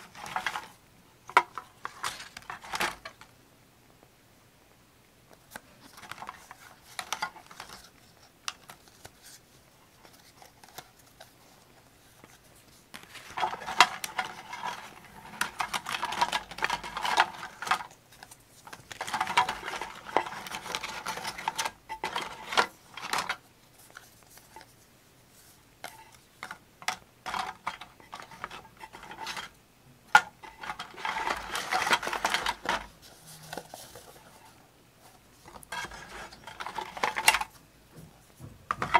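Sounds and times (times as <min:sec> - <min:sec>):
paper rustling and scraping: 0:00.0 - 0:00.8, 0:05.5 - 0:26.6, 0:30.1 - 0:37.6.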